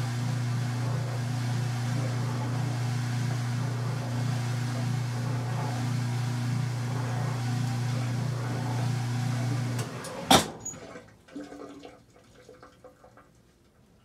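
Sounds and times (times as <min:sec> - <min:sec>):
washing machine humming: 0:00.0 - 0:11.9
faint ticks and drips: 0:11.3 - 0:14.0.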